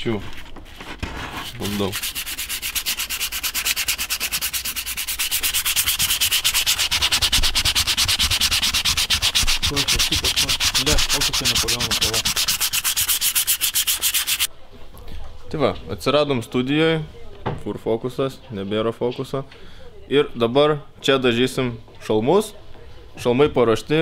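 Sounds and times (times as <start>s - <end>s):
sanding sponge rubbing helmet: 0.8s - 14.5s.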